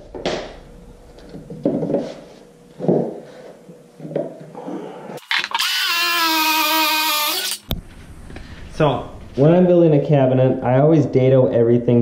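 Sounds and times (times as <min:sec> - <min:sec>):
circular saw cutting plywood: 0:05.2 - 0:07.7.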